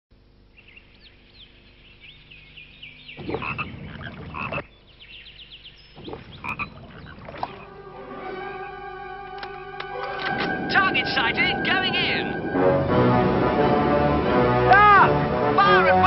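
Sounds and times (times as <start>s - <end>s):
birds chirping: 0.2s - 8.0s
frogs croaking: 0.2s - 8.0s, 10.4s - 12.9s.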